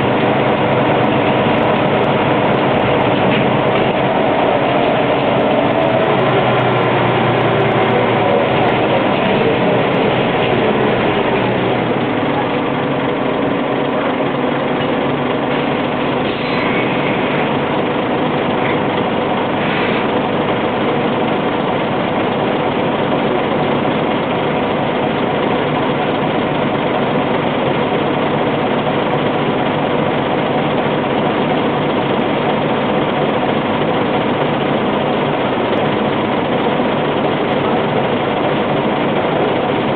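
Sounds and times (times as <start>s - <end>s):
road noise: 0.0s - 25.3s
bus diesel engine: 0.0s - 39.9s.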